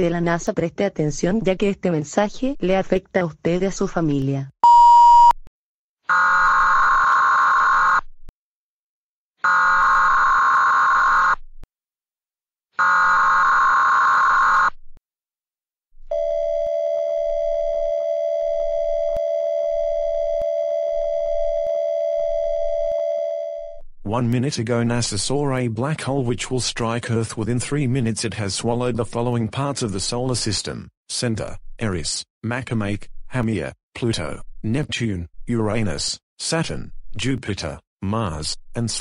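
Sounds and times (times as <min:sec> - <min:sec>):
short beep: 0:04.6 - 0:05.4.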